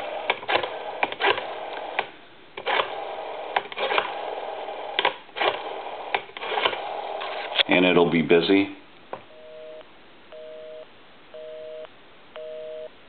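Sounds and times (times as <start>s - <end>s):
rotary phone dial whirring and clicking: 0.0s - 7.6s.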